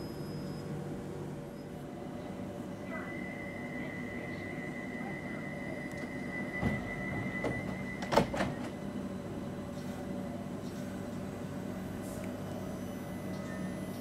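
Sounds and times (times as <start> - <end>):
stationary train humming: 0.0 - 14.0
high warning tone: 2.7 - 8.3
train doors shutting thud: 6.5 - 8.8.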